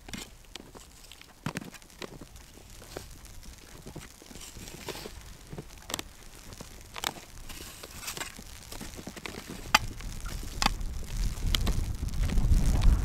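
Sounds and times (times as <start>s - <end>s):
boots crunching in snow: 0.0s - 10.6s
snow shovel scraping snow: 4.4s - 5.6s, 7.1s - 10.4s.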